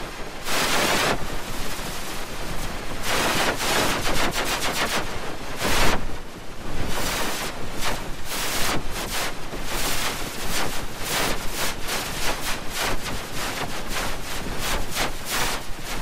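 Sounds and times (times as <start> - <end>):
harsh distorted static noise: 0.0 - 16.0.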